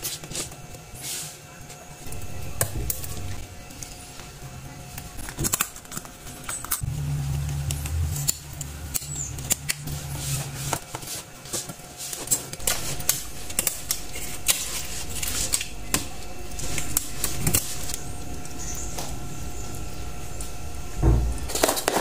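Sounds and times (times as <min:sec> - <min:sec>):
low hum: 0:02.0 - 0:04.8, 0:06.7 - 0:10.7, 0:12.6 - 0:21.9.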